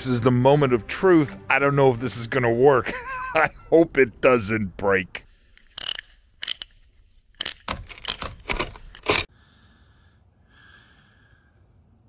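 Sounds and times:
hand winch ratcheting: 5.6 - 6.8, 7.4 - 9.3.

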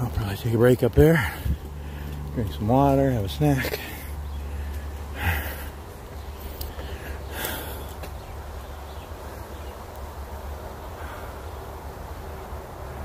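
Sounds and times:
person breathing: 1.2 - 2.2, 3.8 - 8.1.

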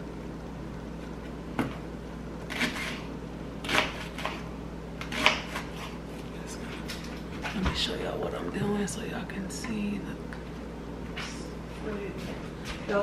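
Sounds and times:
knife slicing onion on board: 2.4 - 6.0.

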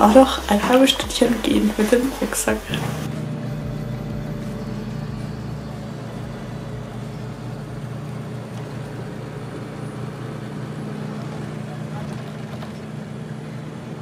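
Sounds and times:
bus engine and road drone: 0.0 - 14.0.

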